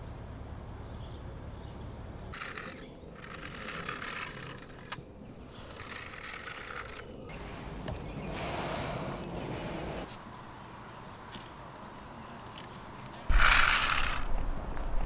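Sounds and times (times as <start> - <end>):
toy truck rattling on concrete: 2.4 - 5.0, 5.7 - 7.1, 13.3 - 14.4.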